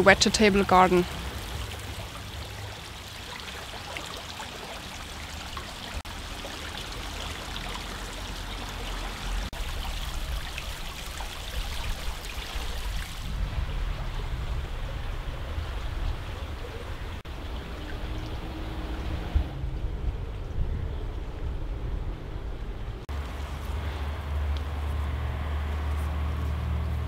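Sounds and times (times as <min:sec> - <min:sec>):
creek water trickling: 0:00.0 - 0:21.4, 0:23.0 - 0:27.0
low rumble: 0:13.1 - 0:23.1.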